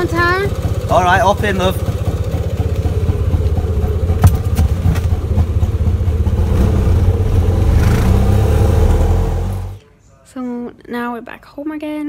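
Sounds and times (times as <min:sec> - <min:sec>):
auto-rickshaw engine running: 0:00.0 - 0:09.8.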